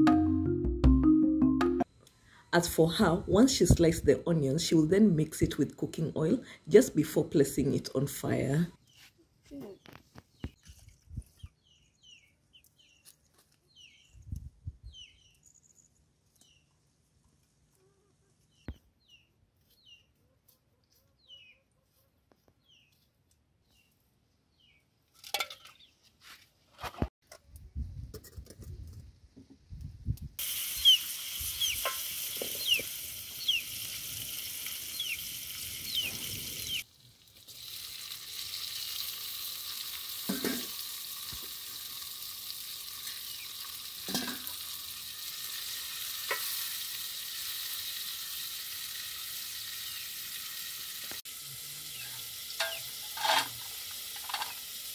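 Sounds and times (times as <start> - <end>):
onions sizzling in oil: 30.4 - 54.9.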